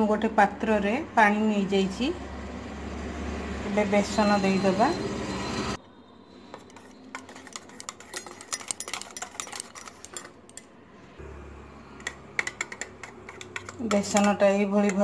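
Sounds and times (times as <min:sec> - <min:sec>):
wire whisk clicking in steel pot: 0:07.2 - 0:10.7, 0:12.0 - 0:15.0.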